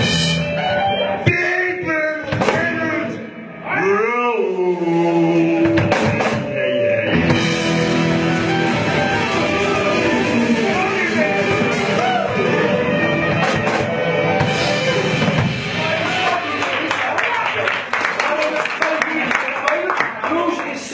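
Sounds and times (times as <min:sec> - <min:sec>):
drum and cymbal hits: 0:00.0 - 0:00.6, 0:02.2 - 0:03.2, 0:04.6 - 0:16.8
live blues band playing: 0:00.0 - 0:17.0.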